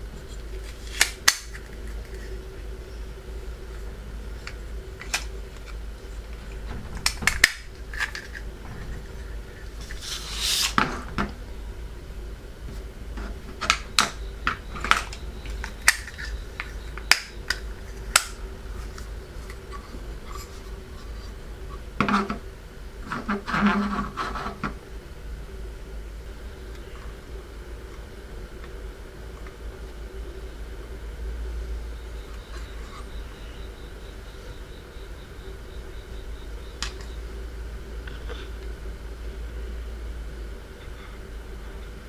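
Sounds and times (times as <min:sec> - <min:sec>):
steady low hum: 0:00.0 - 0:42.0
plastic scraping and rubbing: 0:23.0 - 0:24.8.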